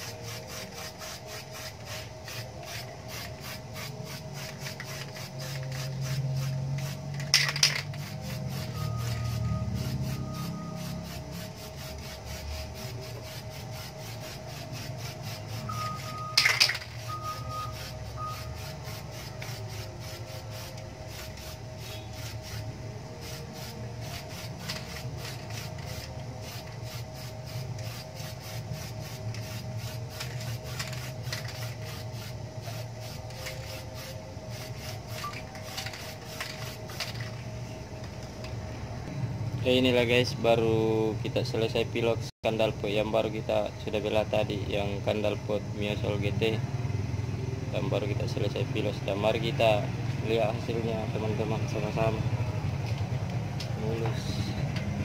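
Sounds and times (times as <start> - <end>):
spray-paint can hissing: 0.0 - 37.4
low background hum: 0.0 - 55.0.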